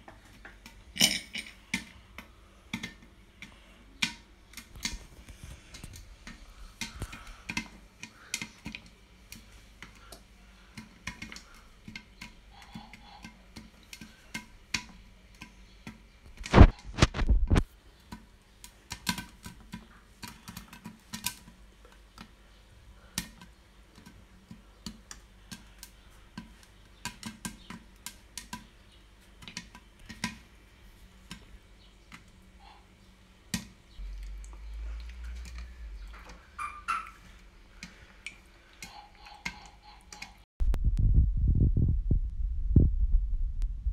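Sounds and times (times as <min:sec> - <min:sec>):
popcorn popping in a pot: 0:00.0 - 0:33.9
low throbbing rumble: 0:34.0 - 0:36.5, 0:40.6 - 0:43.9.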